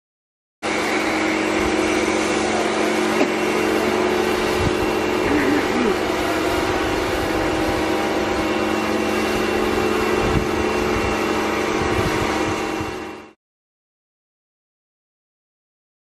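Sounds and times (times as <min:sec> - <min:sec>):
motor humming: 0:00.6 - 0:13.4.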